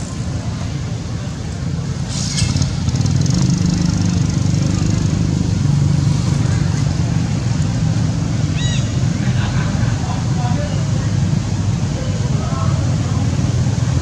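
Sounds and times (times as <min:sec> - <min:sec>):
vehicle engine rumbling: 0:00.0 - 0:14.0
brief hiss: 0:02.0 - 0:02.7.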